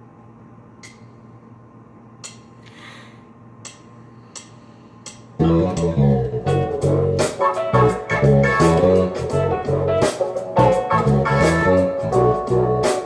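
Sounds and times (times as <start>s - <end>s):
electric bass with effects: 5.4s - 13.0s
funk backing track: 5.4s - 13.0s.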